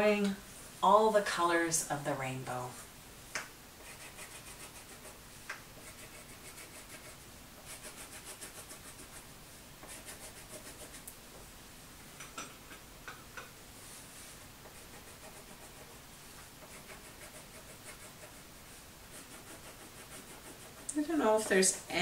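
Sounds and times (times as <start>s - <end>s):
scribbling on paper: 3.8s - 5.2s, 5.8s - 11.1s, 14.6s - 16.0s, 16.6s - 18.5s, 19.1s - 21.5s.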